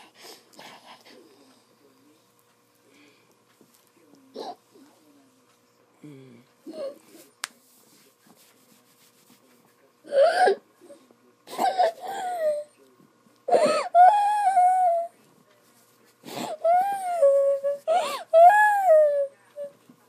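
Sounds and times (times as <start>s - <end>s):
girl whimpering moans: 13.5s - 15.1s, 16.4s - 19.7s.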